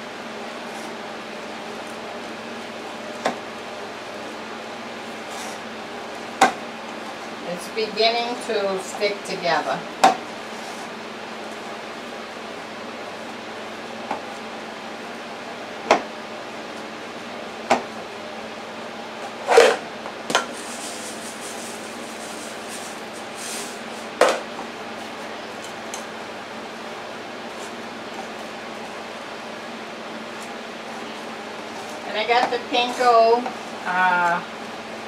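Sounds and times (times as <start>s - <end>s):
steady background hum: 0.0s - 35.0s
soft hiss of shaken breadcrumbs: 20.5s - 24.1s.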